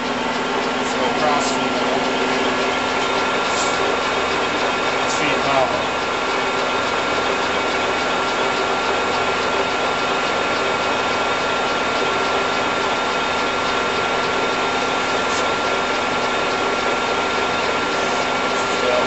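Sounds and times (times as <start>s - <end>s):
lathe running with high whine: 0.0s - 19.0s.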